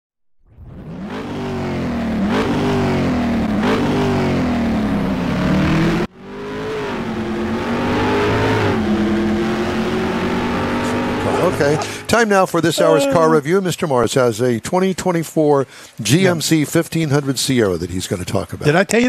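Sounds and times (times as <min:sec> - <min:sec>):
car engine revving: 0:00.5 - 0:13.2.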